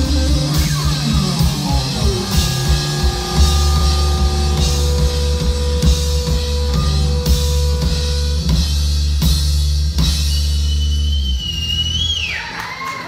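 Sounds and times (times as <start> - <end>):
high held tone: 0.0 - 8.8
rock band playing live: 0.0 - 12.9.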